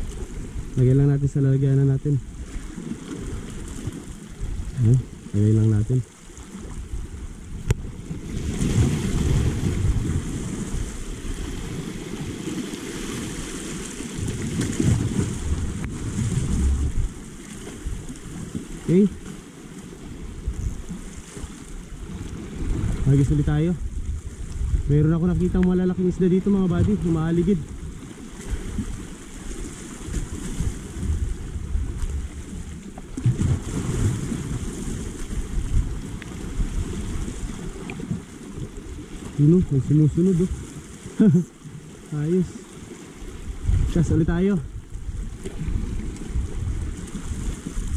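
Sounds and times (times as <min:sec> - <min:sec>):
wind buffeting microphone: 0:00.0 - 0:19.3, 0:19.9 - 0:40.9, 0:43.1 - 0:47.9
waves washing over rocks: 0:00.0 - 0:47.9.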